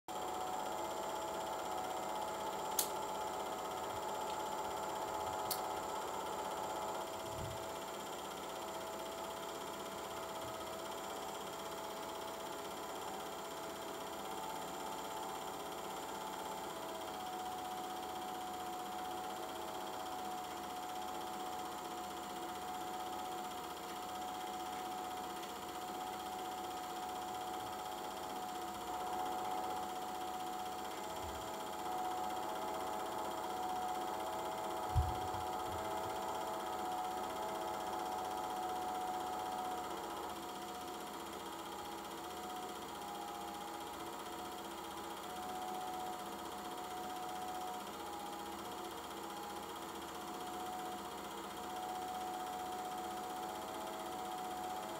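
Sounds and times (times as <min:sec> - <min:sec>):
motor hum with whining tone: 0:00.1 - 0:54.9
sharp click: 0:02.7 - 0:03.0.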